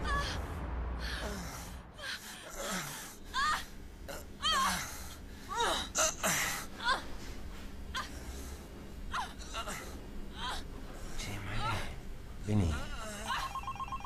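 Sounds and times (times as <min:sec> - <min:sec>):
woman moaning: 0:00.0 - 0:07.1, 0:09.1 - 0:10.6, 0:12.9 - 0:13.6.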